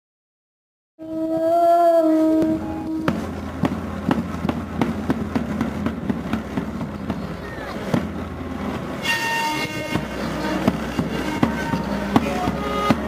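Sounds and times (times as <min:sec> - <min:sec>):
long horn-like held note: 0:01.0 - 0:03.4, 0:09.0 - 0:13.0
hand drums: 0:03.0 - 0:08.9, 0:09.6 - 0:13.0.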